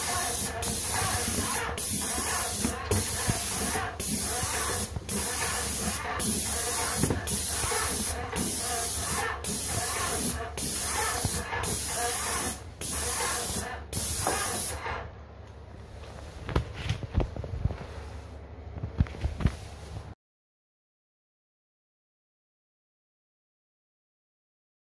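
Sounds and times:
paint spray gun hissing: 0:00.0 - 0:14.8.

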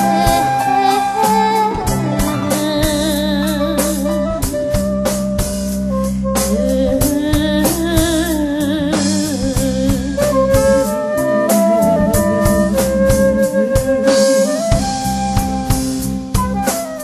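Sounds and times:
wavering melody line: 0:00.0 - 0:04.9, 0:09.6 - 0:15.0
drum kit strikes: 0:00.0 - 0:17.0
folk rock band playing: 0:00.0 - 0:17.0
steady low drone: 0:09.0 - 0:13.7.

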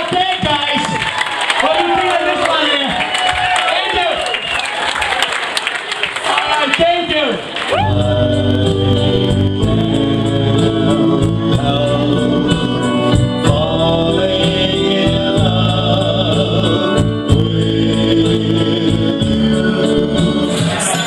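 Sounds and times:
person singing: 0:07.7 - 0:21.0
held keyboard chords: 0:07.8 - 0:21.0.

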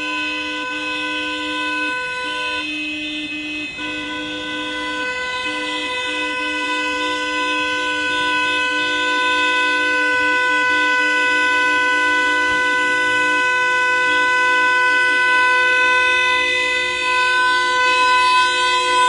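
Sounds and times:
car horns blaring: 0:00.0 - 0:19.0.

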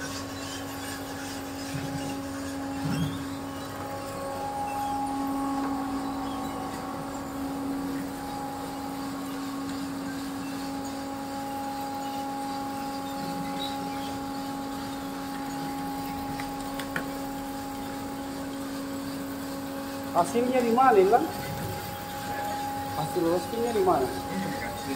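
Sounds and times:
machine motor humming: 0:00.6 - 0:24.9.

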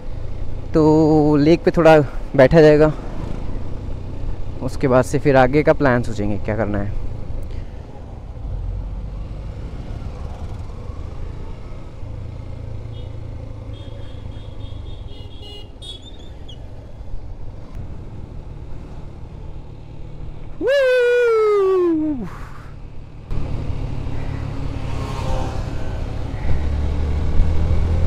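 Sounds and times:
wind: 0:00.0 - 0:28.0
vehicle horn honking: 0:12.9 - 0:16.1.

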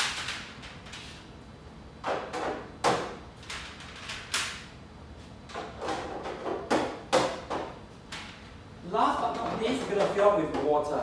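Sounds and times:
plastic covers clattering and knocking: 0:05.5 - 0:07.7.

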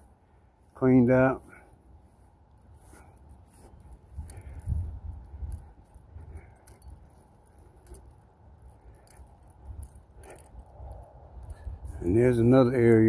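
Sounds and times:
footsteps on lawn: 0:00.5 - 0:04.9.

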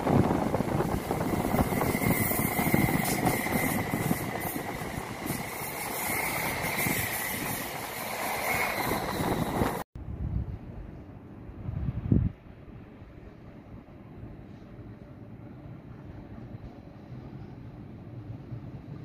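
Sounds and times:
train wheels rumbling on rails: 0:00.0 - 0:09.9.

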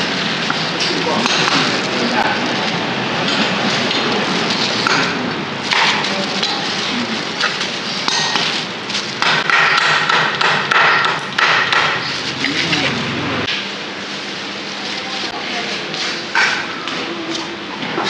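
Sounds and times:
cleaver chopping on wooden block: 0:09.2 - 0:12.0.

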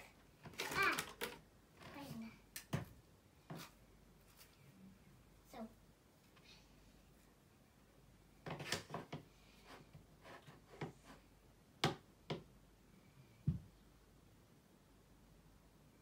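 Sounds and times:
makeup items clicking and rattling: 0:00.5 - 0:01.4.

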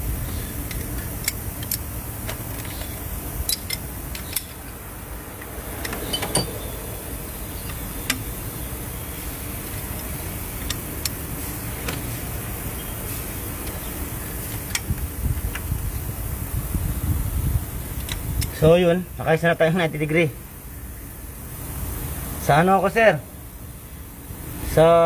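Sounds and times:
metal wrench clicking on bolts: 0:00.6 - 0:01.9, 0:02.6 - 0:04.8.

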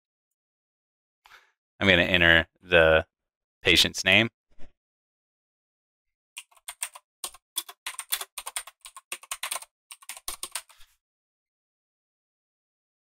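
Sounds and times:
computer keyboard typing: 0:06.4 - 0:10.7.

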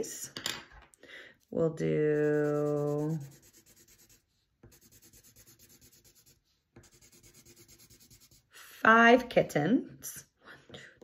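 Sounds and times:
coloured pencil scribbling on paper: 0:01.8 - 0:08.6.

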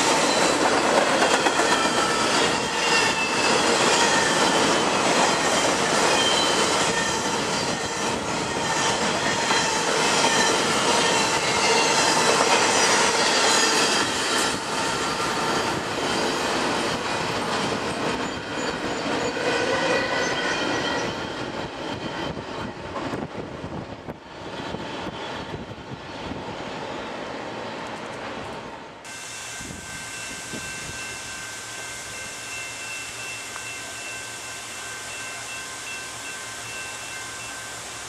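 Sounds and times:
freight train rolling past: 0:00.0 - 0:38.0
high-pitched wheel squeals: 0:01.2 - 0:12.2.

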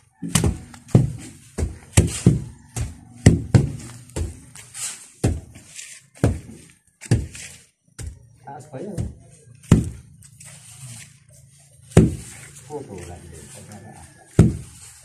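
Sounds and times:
hand tampers thumping earth: 0:00.2 - 0:10.2, 0:11.8 - 0:12.7, 0:14.3 - 0:15.0.

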